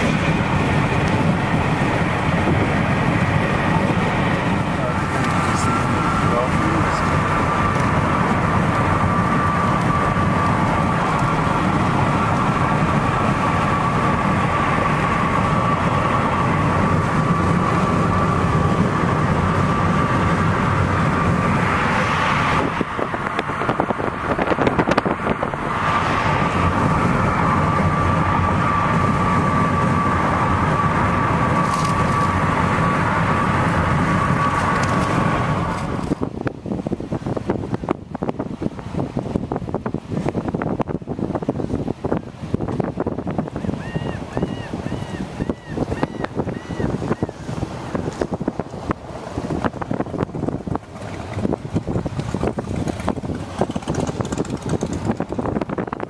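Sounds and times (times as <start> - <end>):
thin steady whine: 0.0 - 39.9
road and tyre noise: 0.0 - 56.0.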